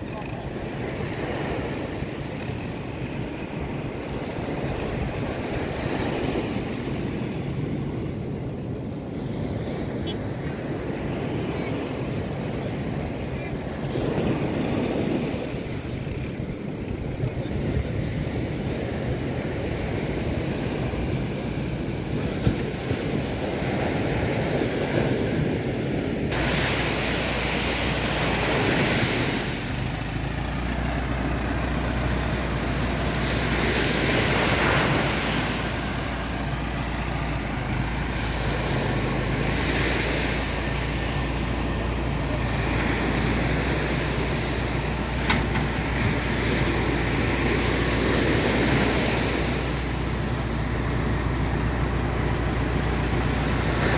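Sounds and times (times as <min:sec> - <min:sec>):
vehicle engine drone: 0:00.0 - 0:53.9
wind buffeting microphone: 0:00.0 - 0:53.9
surf breaking: 0:12.3 - 0:53.9.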